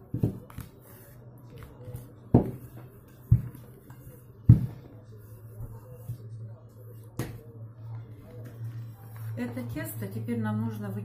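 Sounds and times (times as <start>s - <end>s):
rolling pin rolling dough: 0.0s - 9.4s
rolling pin knocking on table: 2.3s - 3.6s.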